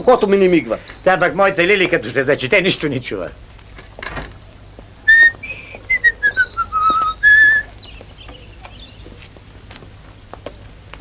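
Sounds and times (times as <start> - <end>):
person whistling a tune: 5.1 - 7.7.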